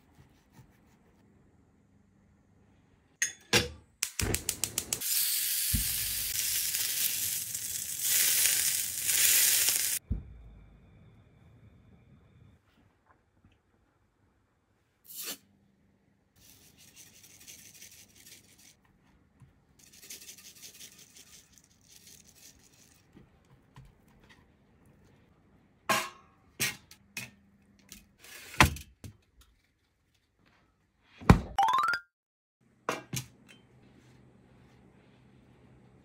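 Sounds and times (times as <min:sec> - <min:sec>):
pepper shaken from a tin: 0:06.4 - 0:10.0, 0:19.8 - 0:23.0.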